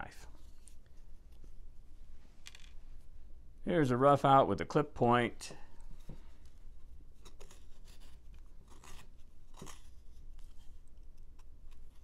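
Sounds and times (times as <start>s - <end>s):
knife carving wood: 7.2s - 12.0s.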